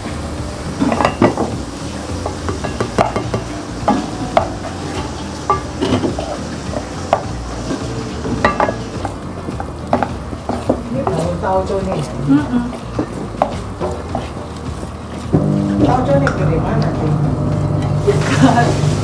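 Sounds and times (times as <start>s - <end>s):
oil sizzling: 0.0s - 19.0s
wooden spatula scraping a pot: 2.2s - 15.3s.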